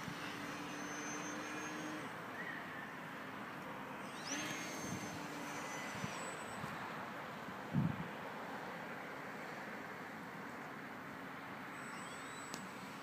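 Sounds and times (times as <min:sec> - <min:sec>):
model airplane motor whining: 0:00.0 - 0:03.0, 0:03.6 - 0:07.2, 0:11.7 - 0:12.9
wind on microphone: 0:07.7 - 0:08.1.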